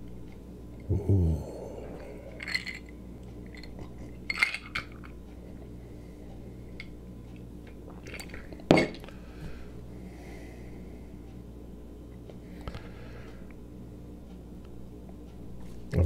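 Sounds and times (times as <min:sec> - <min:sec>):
breathing: 0:05.8 - 0:06.8, 0:09.1 - 0:11.4, 0:12.4 - 0:13.6.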